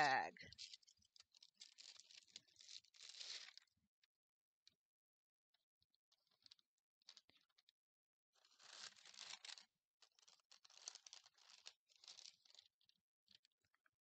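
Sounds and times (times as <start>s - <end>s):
plastic piping bag crinkling: 0.6s - 3.7s, 8.4s - 13.8s
small ticks: 5.9s - 7.8s, 8.4s - 14.0s.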